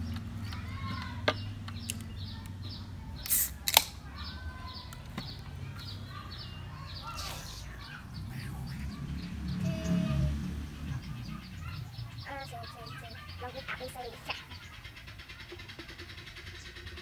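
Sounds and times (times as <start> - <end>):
small birds chirping: 0.0 - 17.0
soda can opening hiss and crack: 3.2 - 4.0.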